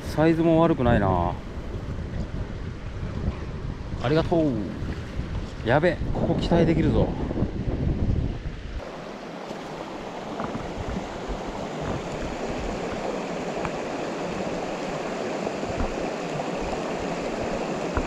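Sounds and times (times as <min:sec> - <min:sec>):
stream running: 0:08.0 - 0:18.0.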